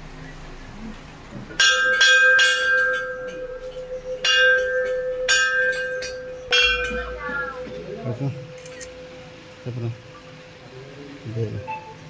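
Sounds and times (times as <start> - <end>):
bell ringing hum: 1.6 - 12.0
brass bell strikes: 1.6 - 12.0.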